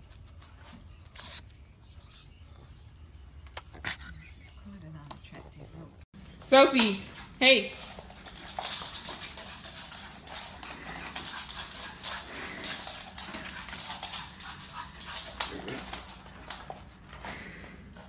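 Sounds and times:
dog claws clicking on wooden floor: 0:07.7 - 0:17.0.

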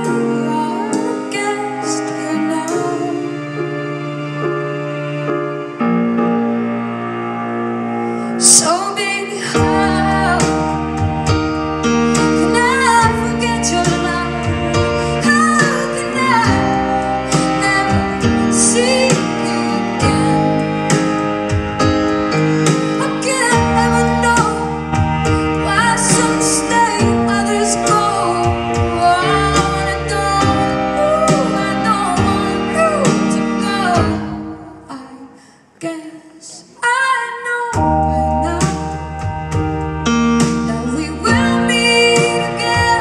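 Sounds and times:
woman singing: 0:00.0 - 0:03.5, 0:08.4 - 0:11.1, 0:12.1 - 0:21.1, 0:22.9 - 0:39.3, 0:40.6 - 0:43.0
grand piano: 0:00.0 - 0:35.1, 0:37.7 - 0:43.0.

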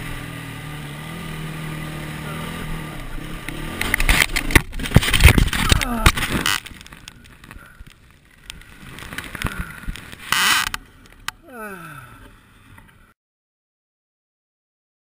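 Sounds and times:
man moaning in pain: 0:02.1 - 0:02.9, 0:05.6 - 0:06.2, 0:11.4 - 0:12.3.

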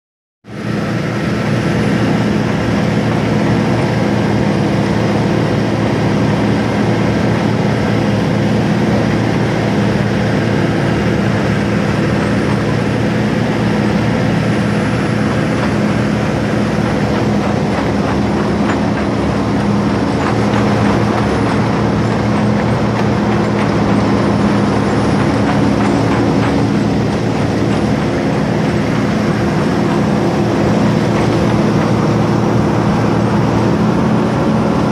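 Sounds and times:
diesel engine running: 0:00.4 - 0:34.9
tracks clattering in water: 0:14.9 - 0:34.9.

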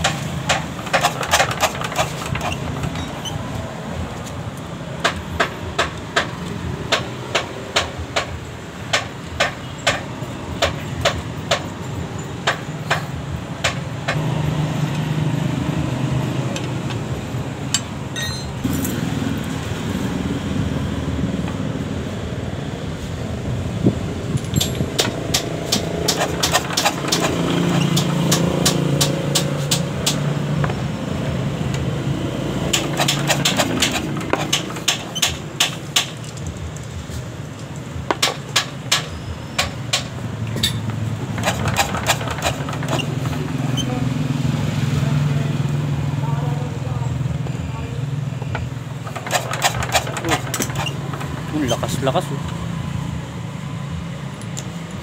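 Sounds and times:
diesel engine sharp clicks: 0:00.0 - 0:03.4, 0:04.2 - 0:11.8, 0:12.4 - 0:14.2, 0:24.3 - 0:30.9, 0:32.6 - 0:44.0, 0:48.4 - 0:52.6.

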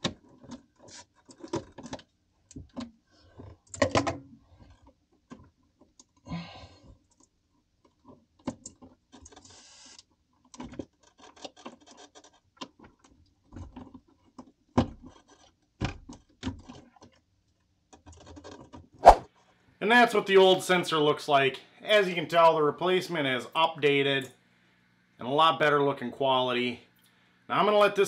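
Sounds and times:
clicks and scrapes: 0:00.0 - 0:02.1, 0:07.9 - 0:17.2.

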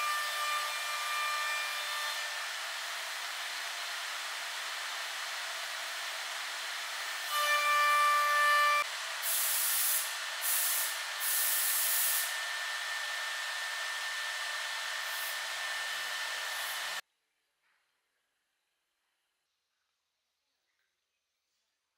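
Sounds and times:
woodworking machine hissing: 0:00.0 - 0:17.0
high hissing bursts: 0:09.2 - 0:12.4
machine whine: 0:10.0 - 0:17.0.

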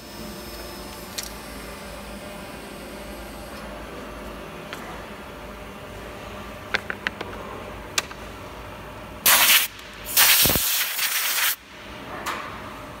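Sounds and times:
compressed air blow gun hissing: 0:09.3 - 0:11.6.

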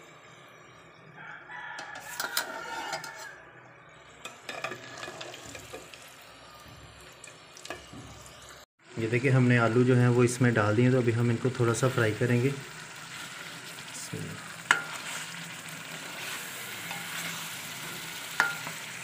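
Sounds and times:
oil sizzling: 0:01.7 - 0:19.0
spoon scraping a steel pot: 0:01.8 - 0:03.4, 0:04.2 - 0:06.0, 0:14.7 - 0:15.3, 0:16.0 - 0:18.9.

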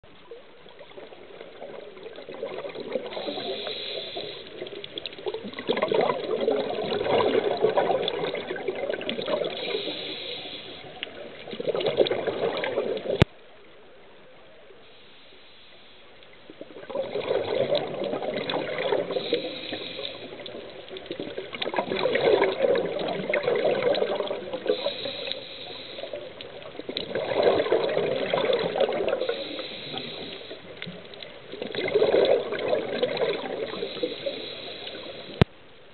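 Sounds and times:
exhaled bubbles gushing: 0:00.7 - 0:13.3, 0:16.5 - 0:35.4
regulator inhale hiss: 0:03.1 - 0:05.0, 0:09.4 - 0:11.2, 0:14.8 - 0:16.2, 0:19.0 - 0:20.9, 0:24.6 - 0:26.6, 0:29.1 - 0:31.1, 0:33.6 - 0:35.5.

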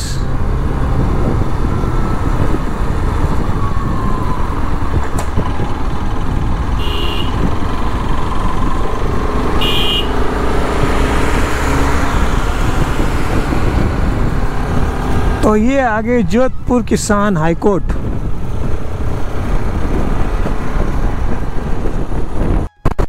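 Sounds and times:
wind noise on microphone: 0:00.2 - 0:23.0
short horn beeps: 0:06.8 - 0:07.4, 0:09.6 - 0:10.2.

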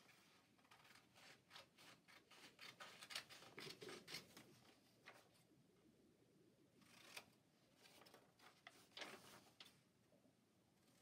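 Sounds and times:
scissors snipping paper: 0:00.6 - 0:04.4.

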